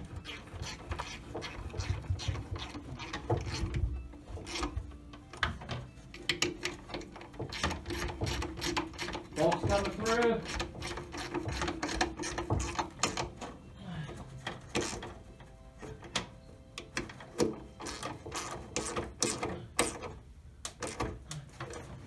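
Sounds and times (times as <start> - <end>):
metal clicks and light knocks: 4.5 - 13.6.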